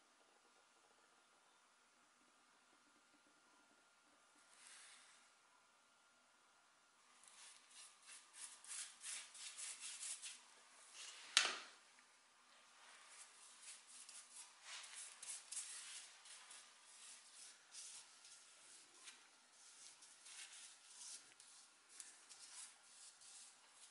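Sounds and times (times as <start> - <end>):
paintbrush strokes on metal: 4.4 - 5.2, 7.2 - 11.2, 12.7 - 23.9.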